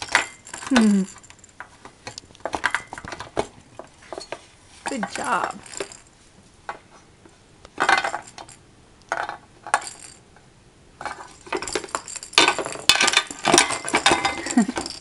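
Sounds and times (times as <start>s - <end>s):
toy ball clanking on metal pan: 4.9s - 6.0s, 11.0s - 15.0s.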